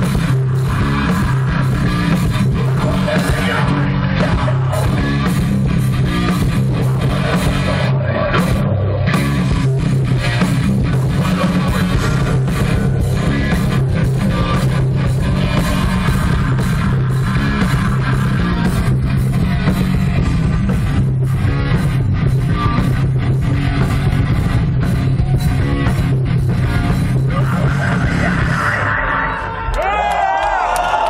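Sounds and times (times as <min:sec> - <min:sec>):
metal band playing live: 0:00.0 - 0:29.9.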